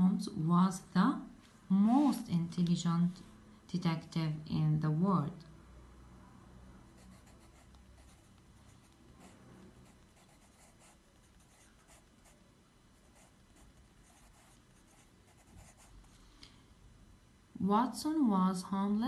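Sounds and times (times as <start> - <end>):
pencil scratching on paper: 7.0 - 12.4, 13.0 - 16.0.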